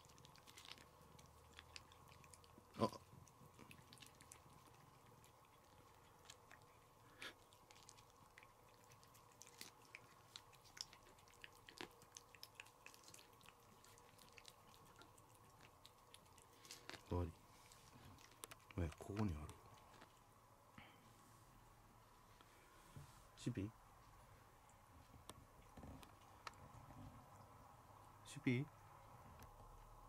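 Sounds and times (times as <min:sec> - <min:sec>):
cat licking: 0:00.0 - 0:20.4.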